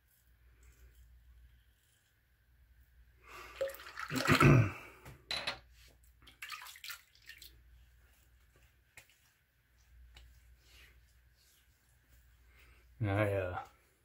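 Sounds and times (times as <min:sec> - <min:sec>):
water running at a sink: 0:03.4 - 0:04.7, 0:06.1 - 0:08.2
water splashed on face: 0:03.6 - 0:04.6.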